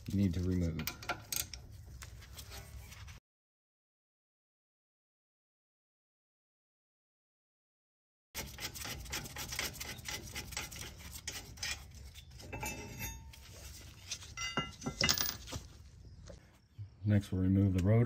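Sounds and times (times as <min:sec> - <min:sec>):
ringing metal clinks: 0:14.4 - 0:15.4.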